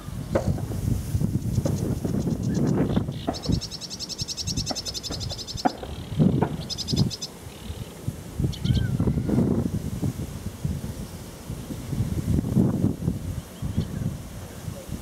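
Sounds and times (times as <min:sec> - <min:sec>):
wind buffeting microphone: 0:00.0 - 0:15.0
bird chattering trills: 0:01.4 - 0:09.2.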